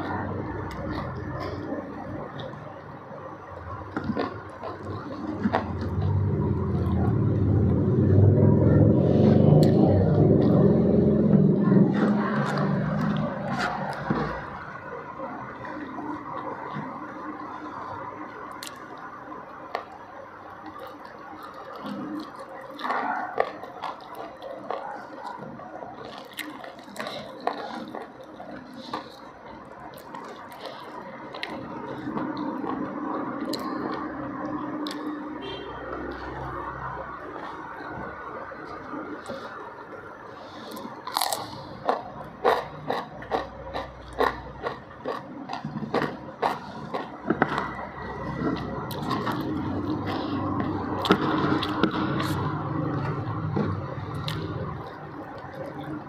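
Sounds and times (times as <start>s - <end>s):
wet chewing and lip smacking: 0.0s - 8.0s, 9.5s - 56.0s
cucumber crunching: 18.5s - 19.0s, 20.6s - 39.6s, 40.5s - 56.0s.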